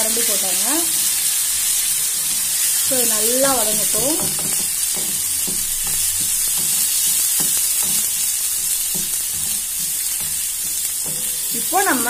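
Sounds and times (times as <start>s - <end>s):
paste sizzling in oil: 0.0s - 12.0s
steel spoon scraping a pan: 1.6s - 12.0s.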